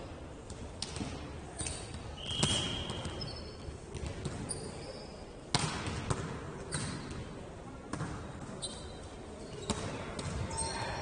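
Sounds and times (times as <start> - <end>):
referee's whistle blast: 2.2 - 3.2
shoe squeaks: 2.2 - 3.6, 4.5 - 5.2, 8.6 - 9.7.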